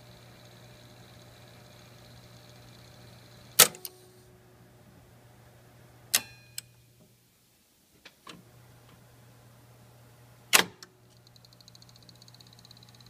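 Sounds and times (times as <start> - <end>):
tape deck mechanical clicks: 3.6 - 4.0.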